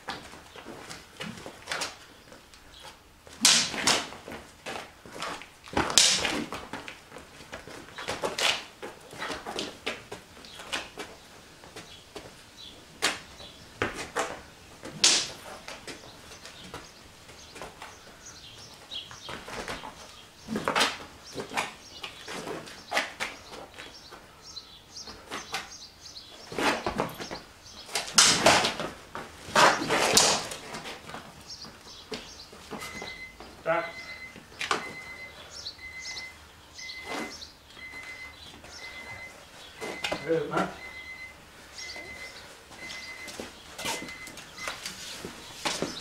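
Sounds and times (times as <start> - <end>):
sticks clacking: 5.7 - 6.5, 14.2 - 15.9.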